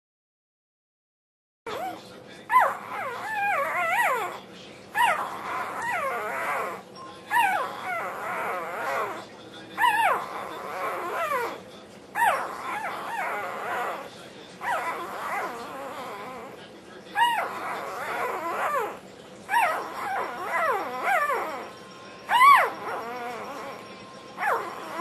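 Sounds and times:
puppy howling: 1.7 - 25.0.

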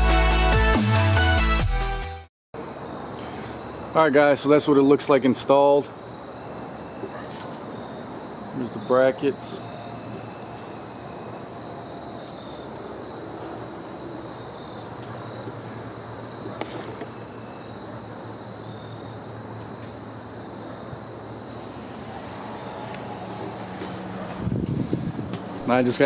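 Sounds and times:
crickets chirping: 2.6 - 26.0.

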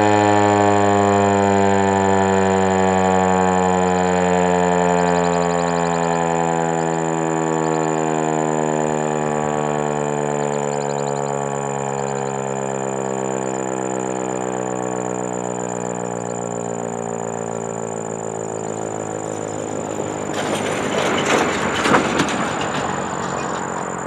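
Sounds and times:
warning siren winding down: 0.0 - 24.0
rushing noise with sharp bumps: 19.3 - 24.0.

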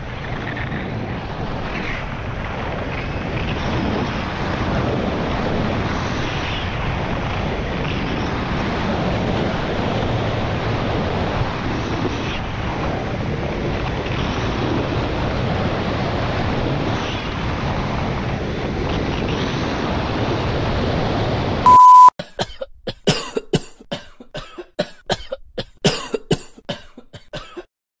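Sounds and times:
wind rushing over microphone: 0.0 - 21.7
short electronic beep: 21.6 - 22.1.

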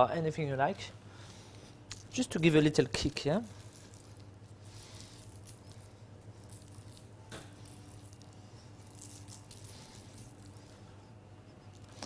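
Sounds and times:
low steady hum: 0.0 - 12.0
pepper pattering onto pastry: 1.9 - 11.0.

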